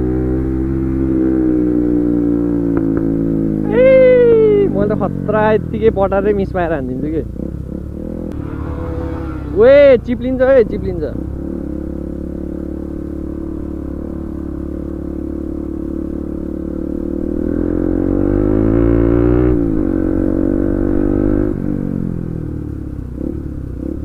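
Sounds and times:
motorcycle engine revving: 0:00.0 - 0:24.0.

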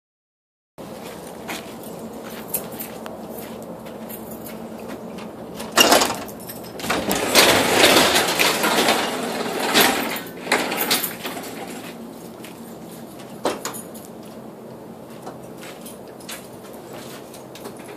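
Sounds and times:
garage door rattling open: 0:05.4 - 0:12.0.

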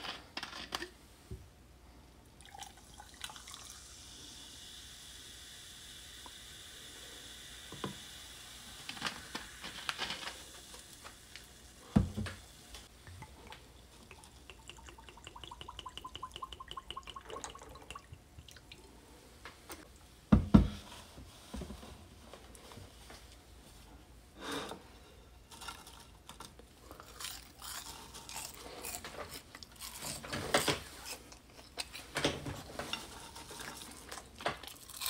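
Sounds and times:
cola fizzing over ice: 0:02.4 - 0:18.9.

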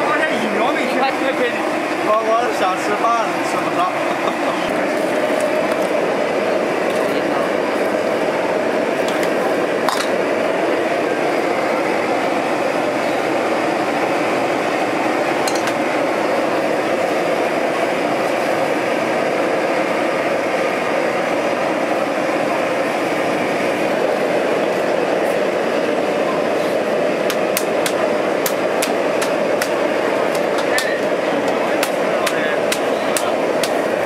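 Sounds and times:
gas burner roaring: 0:00.0 - 0:34.0
water boiling in a pot: 0:00.0 - 0:34.0.

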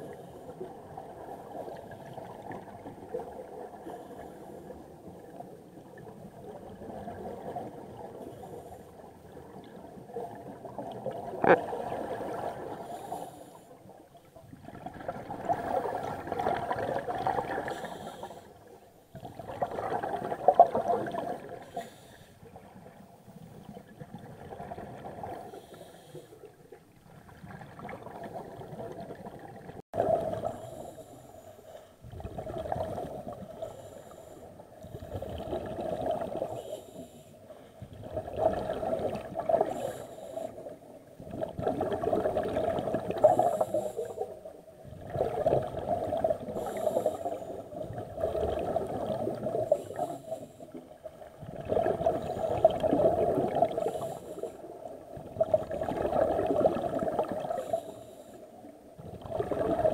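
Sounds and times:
regulator exhaust bubbles underwater: 0:14.2 - 0:18.3, 0:19.1 - 0:21.8, 0:26.7 - 0:31.2, 0:32.0 - 0:33.9, 0:34.6 - 0:36.7, 0:37.8 - 0:58.0, 0:58.6 - 0:59.9.

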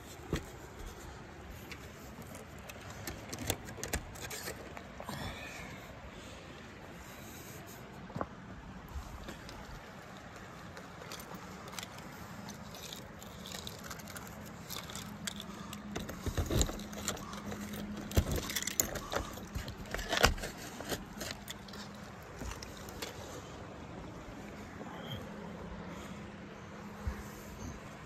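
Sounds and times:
phone rustling against clothing: 0:00.0 - 0:05.2, 0:06.6 - 0:28.0
faint hum and background rush: 0:00.0 - 0:28.0
handling thumps: 0:00.1 - 0:04.3.

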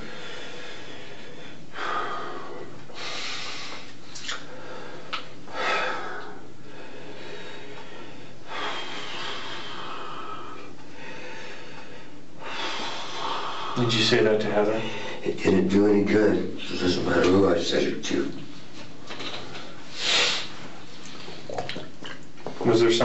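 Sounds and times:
man breathing heavily: 0:00.0 - 0:14.0
recording hiss: 0:00.0 - 0:23.0.

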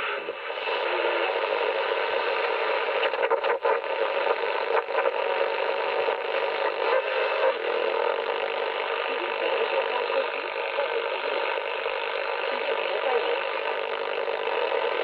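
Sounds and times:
faint broadcast voices: 0:00.0 - 0:15.0
radio static and hiss: 0:00.0 - 0:15.0.

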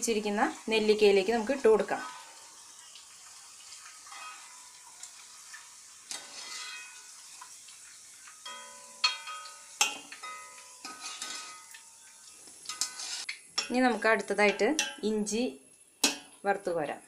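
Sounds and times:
garlic sizzling in oil: 0:00.0 - 0:17.0
spoon clinking against pan: 0:04.1 - 0:04.6, 0:06.4 - 0:07.1, 0:08.4 - 0:11.8, 0:12.7 - 0:15.1, 0:16.0 - 0:16.3.

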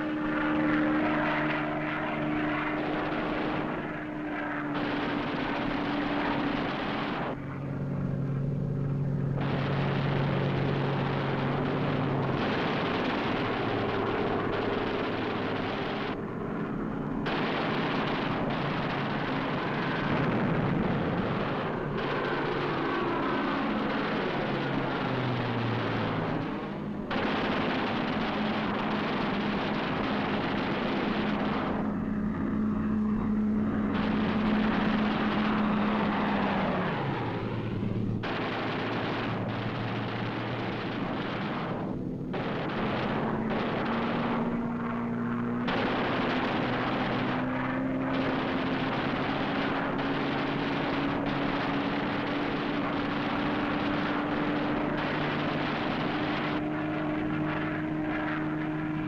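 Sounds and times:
fighter plane engine drone: 0:00.0 - 0:59.0
machine-gun fire: 0:04.7 - 0:07.3, 0:17.2 - 0:32.0, 0:33.8 - 0:37.2, 0:38.1 - 0:44.8, 0:45.6 - 0:56.6.

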